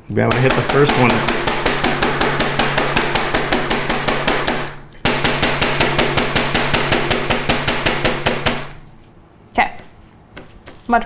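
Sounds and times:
meat mallet pounding chicken: 0.2s - 8.8s.

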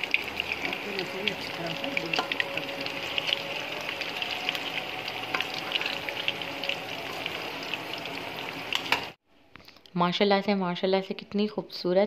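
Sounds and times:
fish deep-frying in oil: 0.0s - 9.2s.

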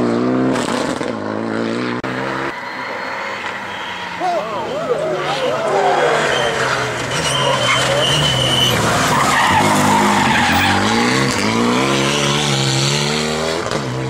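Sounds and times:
turbocharged car engine revving: 0.0s - 14.0s
tyre squeal: 2.4s - 12.3s.

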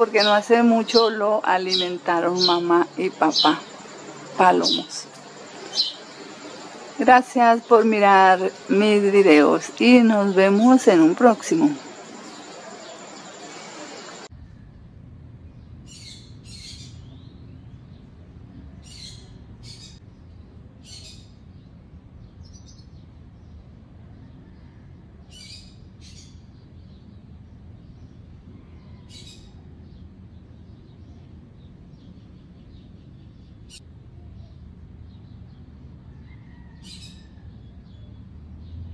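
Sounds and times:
low outdoor rumble: 0.0s - 38.9s
high-pitched bird chirps: 0.1s - 6.1s.

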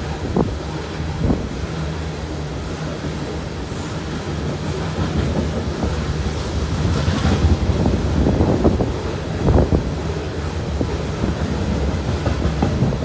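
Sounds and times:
train wheels rumbling on rail: 0.0s - 13.0s
hopper cars knocking and clattering: 4.4s - 13.0s.

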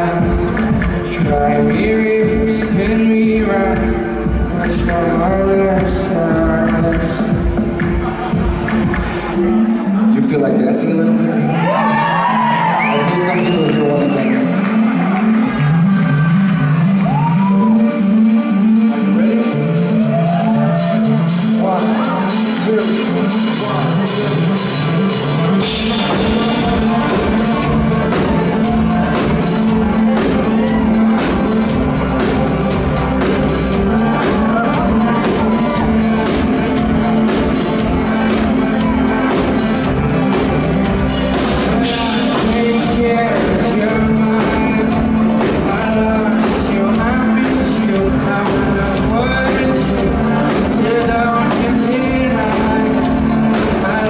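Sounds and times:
drum kit: 0.0s - 9.6s, 20.1s - 54.0s
bass: 0.0s - 54.0s
keyboards: 0.0s - 54.0s
man singing lead vocals: 0.0s - 54.0s.

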